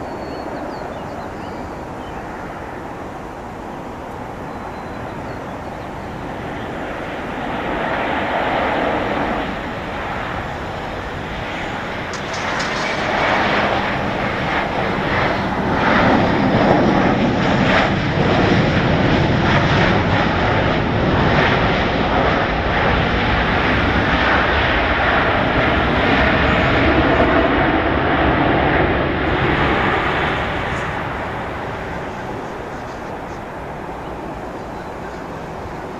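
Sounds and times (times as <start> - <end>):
jet engines landing: 0.0 - 35.9.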